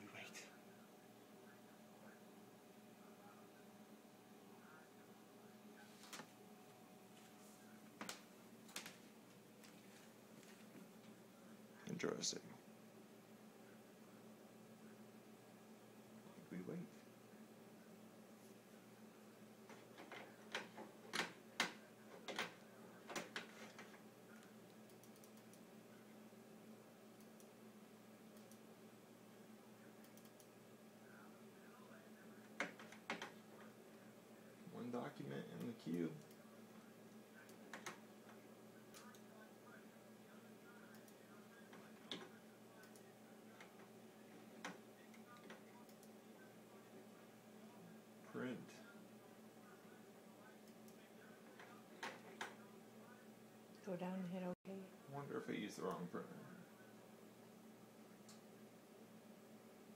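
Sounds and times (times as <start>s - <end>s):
steady low hum: 0.0s - 59.9s
soft clicks: 20.5s - 25.7s, 28.3s - 28.6s, 30.0s - 30.5s, 38.9s - 39.3s, 40.9s - 41.2s, 42.1s - 43.8s, 44.6s - 46.2s.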